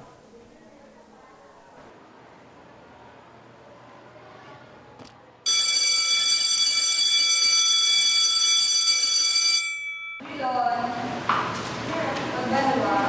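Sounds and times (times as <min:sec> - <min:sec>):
electric school bell ringing: 0:05.5 - 0:10.3.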